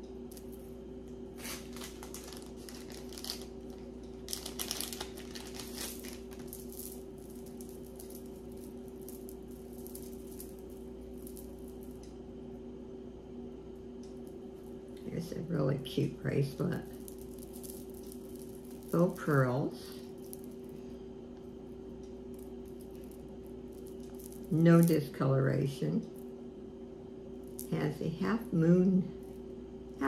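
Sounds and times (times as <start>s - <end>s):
steady low hum: 0.0s - 30.0s
beaded bracelet clicking and rustling: 1.4s - 12.2s, 16.7s - 20.8s, 21.4s - 25.1s.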